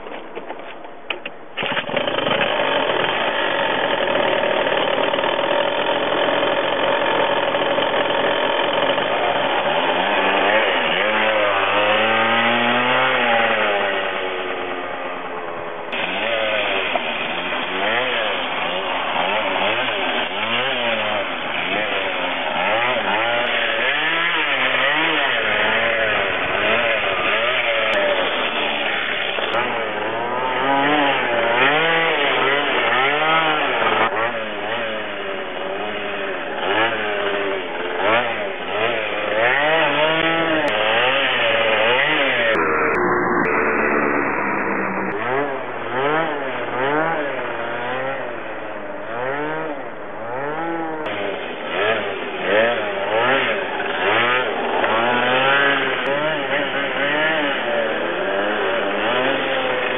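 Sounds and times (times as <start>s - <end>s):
scooter engine revving: 1.6s - 59.9s.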